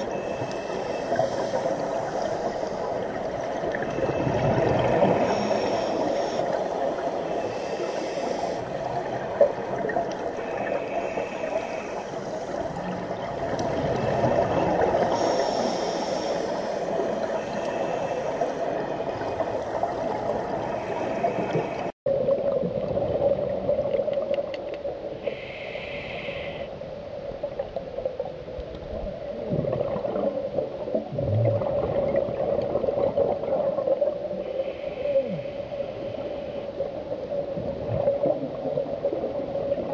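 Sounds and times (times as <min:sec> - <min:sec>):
muffled underwater rushing: 0:00.0 - 0:25.3.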